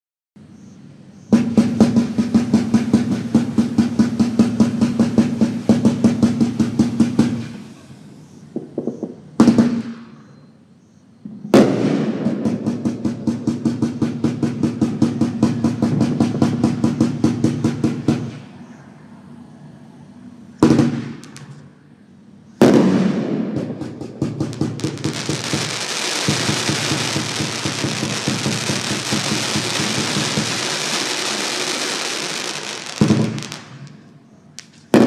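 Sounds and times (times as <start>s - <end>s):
fireworks launch thumps: 1.3s - 7.7s, 8.4s - 10.2s, 11.2s - 18.5s, 20.6s - 21.7s, 22.6s - 34.0s
loud single firework shot: 1.3s - 10.4s, 11.3s - 18.5s, 20.6s - 21.7s, 22.6s - 35.0s.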